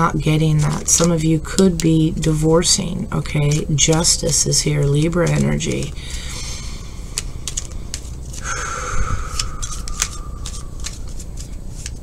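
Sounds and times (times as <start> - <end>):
cards clicking and scraping: 3.3 - 6.3, 7.1 - 8.5, 9.2 - 12.0
faint high falling whine: 8.4 - 11.2.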